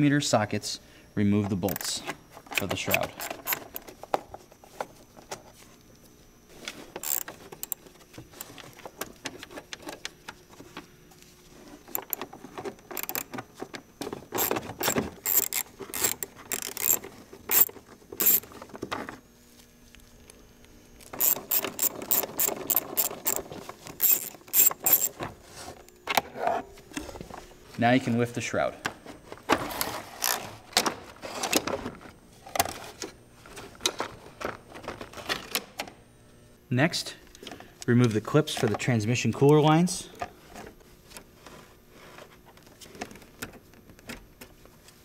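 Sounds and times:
socket ratchet clicking: 7.0s - 7.8s, 11.9s - 12.2s, 12.9s - 13.3s, 14.4s - 18.4s, 21.2s - 23.4s, 24.0s - 25.2s.

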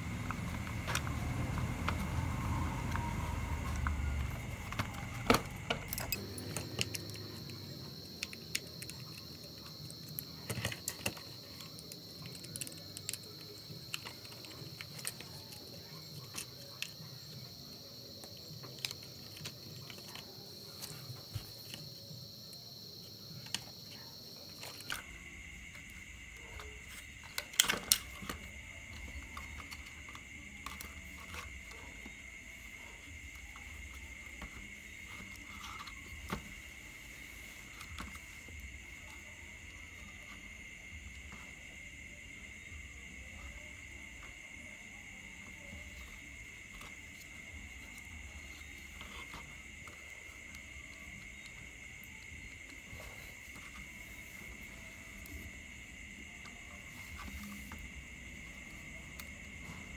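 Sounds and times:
plastic parts clicking and knocking: 0.0s - 17.4s, 26.6s - 32.2s.

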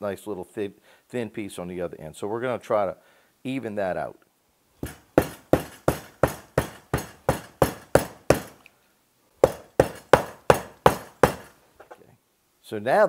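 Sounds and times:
meat mallet pounding chicken: 4.8s - 8.6s, 9.4s - 11.5s.

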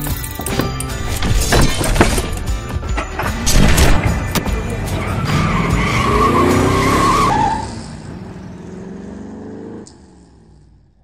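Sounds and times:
car engine revving: 3.4s - 11.0s
tyre screech: 4.8s - 8.1s.

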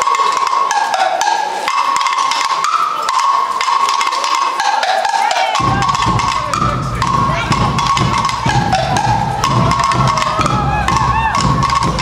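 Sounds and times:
clattering percussion: 0.0s - 12.0s
marching band melody: 0.0s - 12.0s
deep bass drums: 5.6s - 12.0s.

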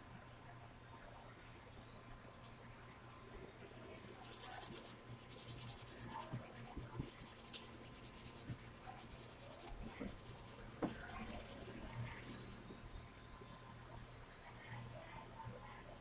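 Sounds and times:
pencil scratching on paper: 4.2s - 12.5s.

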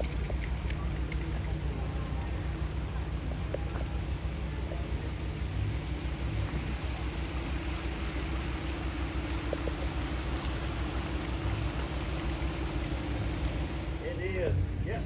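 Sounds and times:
faint steady hum: 0.0s - 15.0s
water rushing over rocks: 5.0s - 14.1s.

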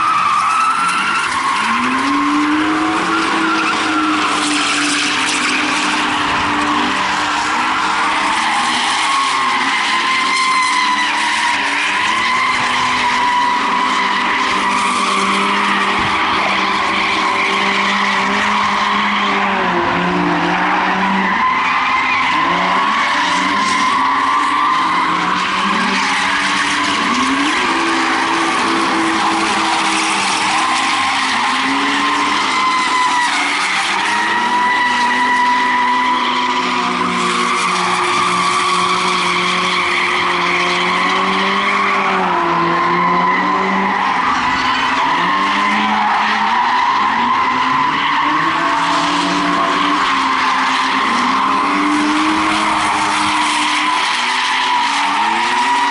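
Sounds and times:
engines revving: 0.0s - 55.9s
tyres squealing: 0.0s - 55.9s.

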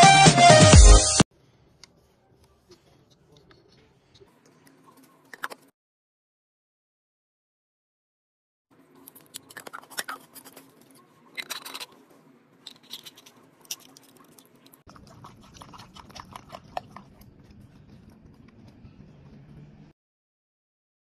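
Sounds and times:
dog lapping water: 13.8s - 17.8s.

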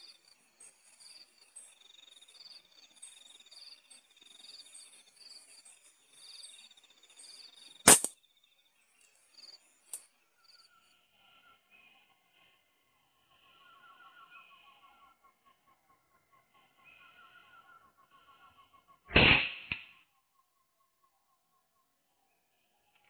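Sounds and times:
air rifle shot: 7.9s - 8.1s, 19.1s - 19.9s.

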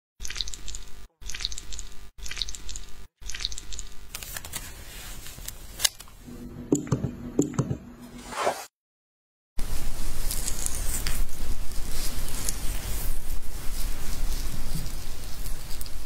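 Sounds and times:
brush crackling through sticky gel: 10.1s - 16.0s.

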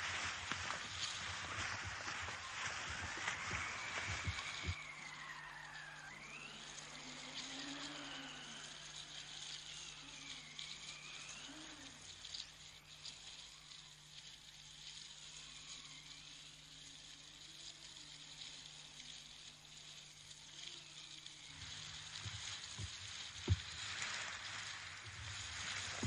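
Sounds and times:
faint hiss: 0.0s - 26.0s
low gliding soundtrack tone: 2.5s - 12.0s.

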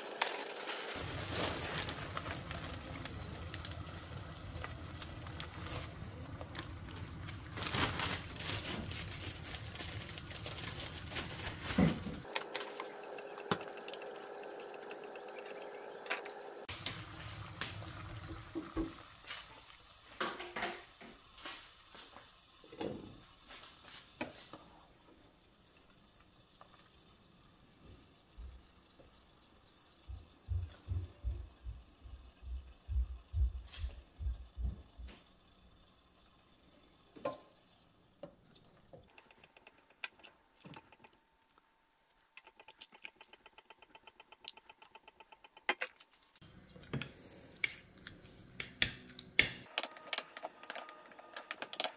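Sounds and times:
plastic bag crinkling: 0.0s - 12.8s
water boiling in a pot: 0.0s - 51.9s.

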